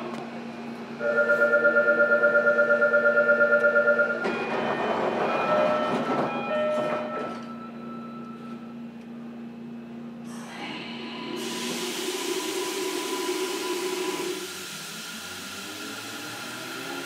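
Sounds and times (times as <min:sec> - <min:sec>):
steady train hum: 0:00.0 - 0:17.0
train doors clattering shut: 0:04.2 - 0:07.6.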